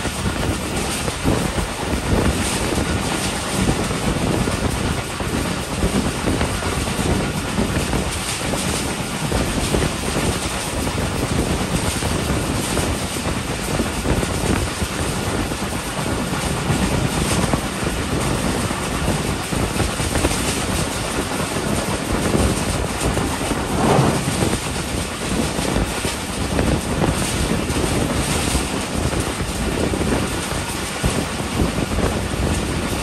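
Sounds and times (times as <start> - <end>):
train wheel and rail noise: 0.0 - 33.0.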